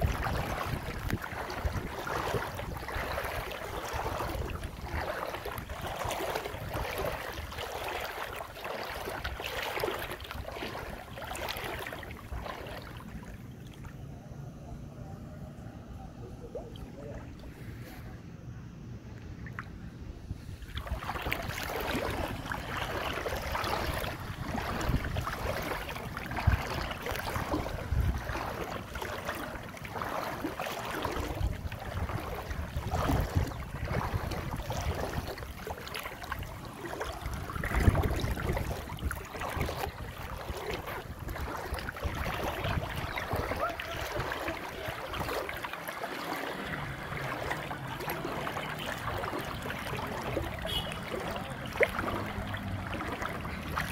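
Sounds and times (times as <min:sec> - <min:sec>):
wading through sloshing water: 0:00.0 - 0:53.9.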